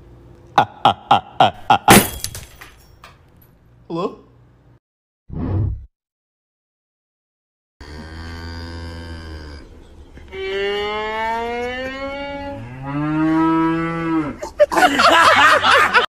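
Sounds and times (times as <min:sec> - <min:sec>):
cow mooing: 0:07.8 - 0:09.7, 0:10.3 - 0:14.4.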